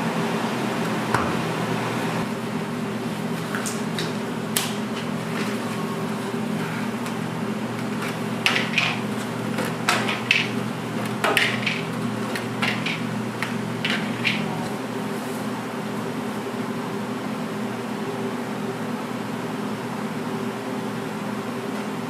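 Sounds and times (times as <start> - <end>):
steady machine hum: 0.0 - 22.0
kitchen utensils clinking: 7.9 - 14.7.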